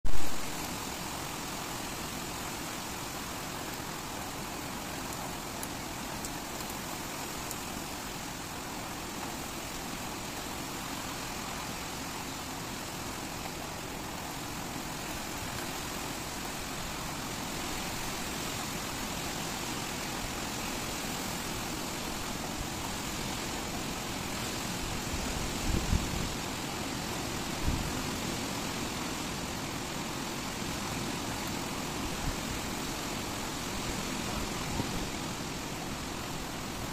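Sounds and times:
heavy rain on asphalt and car roof: 0.0s - 36.9s.

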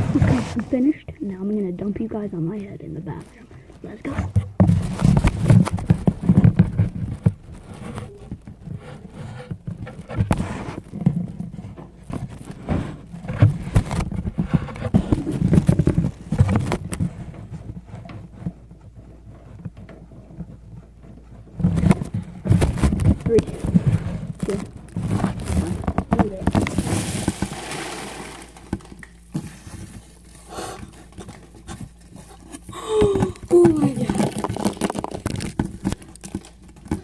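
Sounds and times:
packing peanuts rustling: 22.7s - 37.0s.

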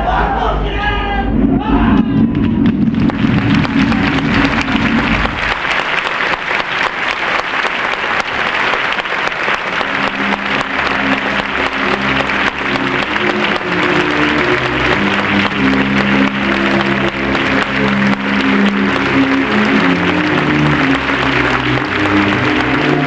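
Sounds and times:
audience applauding: 2.4s - 23.0s
music with held notes: 9.6s - 23.0s.

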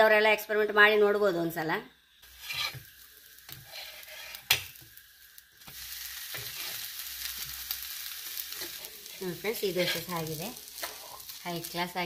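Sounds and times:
food sizzling on hot pan: 2.1s - 12.0s
metal spatula scraping pan: 2.2s - 2.9s, 3.5s - 4.8s, 5.7s - 6.9s, 8.5s - 11.3s.

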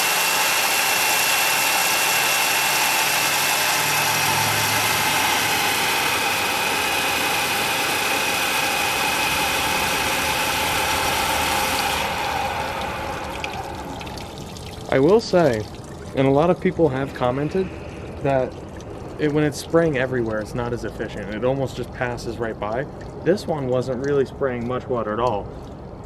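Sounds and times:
turbine wheel whine: 0.0s - 15.6s, 16.3s - 20.0s
water spraying in turbine housing: 0.0s - 25.6s.

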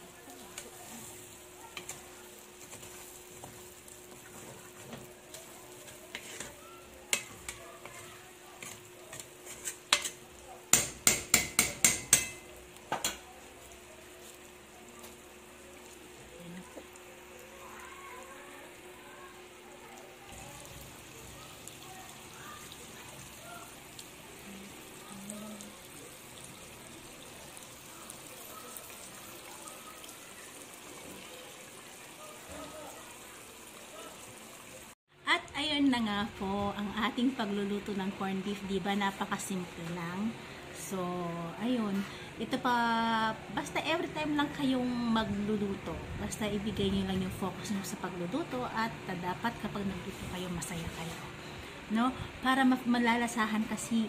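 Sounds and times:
faint sizzle of frying food: 0.0s - 54.0s
spoon scraping a metal pot: 5.8s - 10.2s
spoon knocking against pot: 9.9s - 13.2s.

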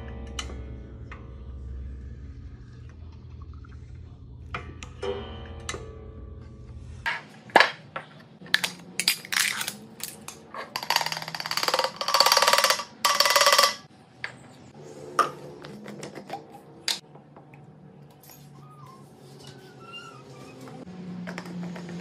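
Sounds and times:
containers clicking and knocking: 7.1s - 13.9s
dry pieces rattling into container: 8.6s - 13.8s.

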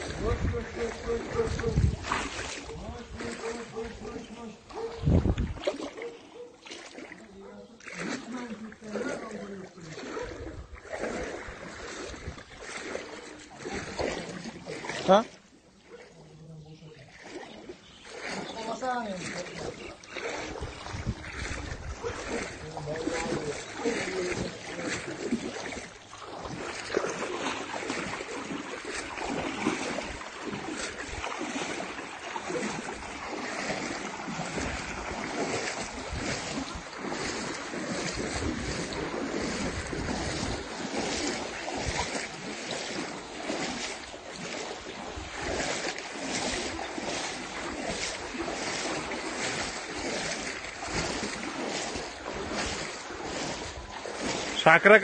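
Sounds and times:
wind noise on microphone: 0.0s - 5.7s, 10.2s - 12.7s, 20.3s - 23.6s, 34.4s - 42.4s
water splashing around boat: 0.0s - 55.0s.

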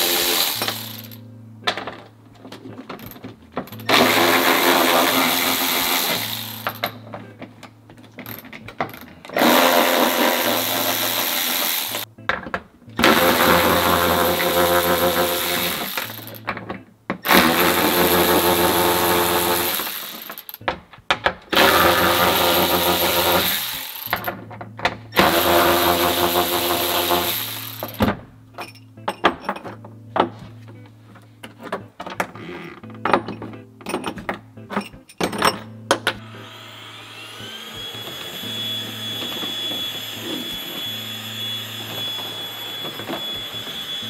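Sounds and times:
electric ratchet whirring: 0.0s - 1.2s, 3.7s - 7.0s, 9.3s - 12.1s, 13.0s - 16.4s, 17.2s - 20.6s, 21.5s - 24.3s, 25.2s - 28.1s, 36.2s - 44.0s
metal bolts clinking: 0.4s - 4.5s, 6.0s - 9.4s, 27.8s - 30.4s, 32.9s - 36.2s
stick vacuum whining: 2.9s - 7.4s, 13.0s - 16.6s, 17.2s - 20.4s, 21.5s - 24.4s, 25.1s - 28.1s, 36.1s - 44.0s.

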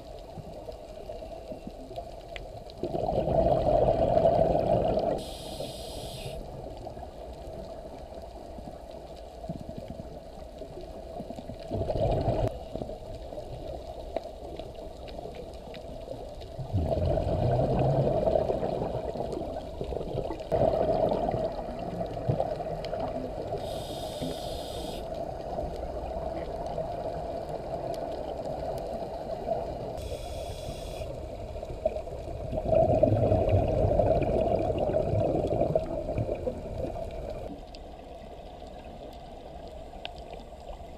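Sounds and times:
steady underwater hum: 0.0s - 40.9s
regulator bubbling exhalations: 2.8s - 6.4s, 11.7s - 12.5s, 16.6s - 22.0s
regulator hissing inhalations: 5.2s - 6.4s, 23.6s - 25.1s, 30.0s - 31.1s.

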